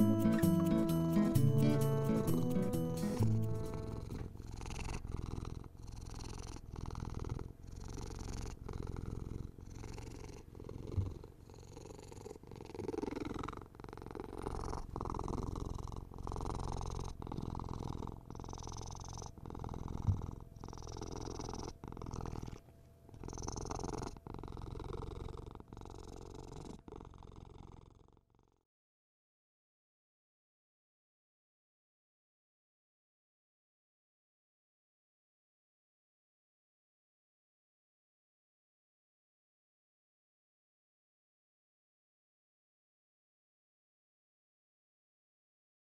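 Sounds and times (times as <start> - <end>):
kitten purring: 3.1 - 28.6.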